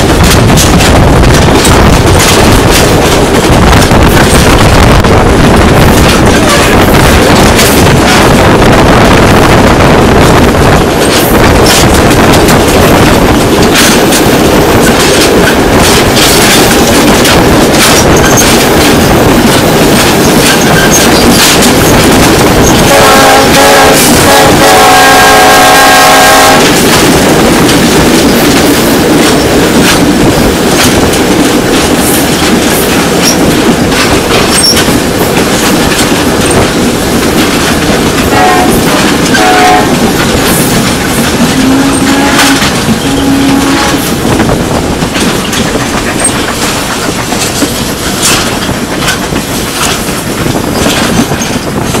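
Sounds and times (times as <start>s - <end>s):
train wheels clacking on rails: 0.0s - 52.0s
locomotive horn: 22.8s - 26.8s, 38.3s - 40.1s, 41.4s - 44.1s.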